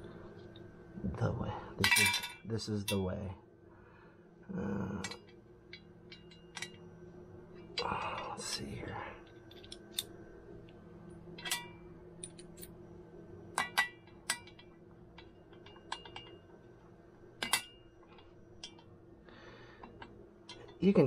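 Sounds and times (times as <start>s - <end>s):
faint steady hum: 0.0s - 21.0s
small metal parts clinking: 1.8s - 3.1s, 7.6s - 10.1s, 11.4s - 12.8s.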